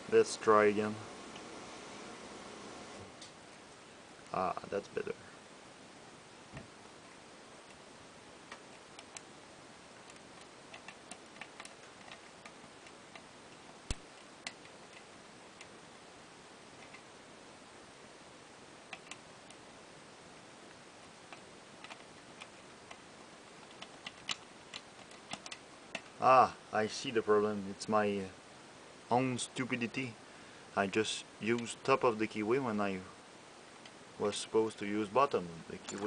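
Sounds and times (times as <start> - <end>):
faint steady hiss: 0.0 - 36.0.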